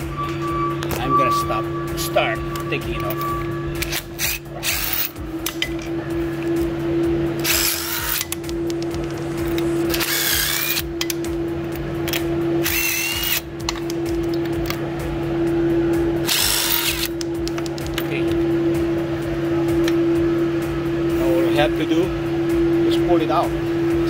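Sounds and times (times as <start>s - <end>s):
steady hum: 0.0s - 24.0s
impact wrench spinning: 3.8s - 5.9s, 7.4s - 11.2s, 12.0s - 14.4s, 16.2s - 18.0s.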